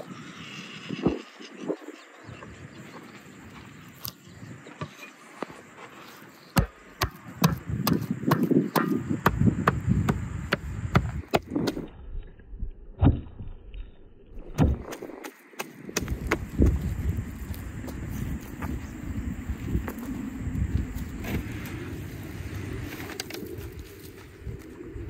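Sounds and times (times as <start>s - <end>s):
cleaver chopping meat on wood: 6.6s - 11.8s.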